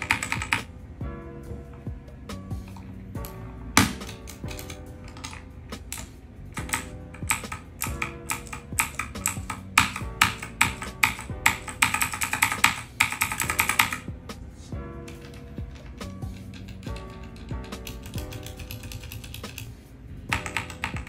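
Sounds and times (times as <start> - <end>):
fast mechanical keyboard typing: 0.0 - 0.7, 4.0 - 14.0, 15.1 - 19.7, 20.3 - 21.0
background music: 0.0 - 21.0.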